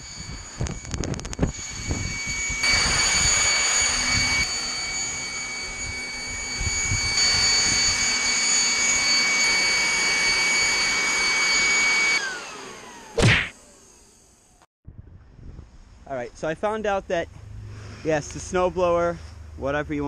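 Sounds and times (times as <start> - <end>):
electric leaf blower running: 0.0 - 14.6.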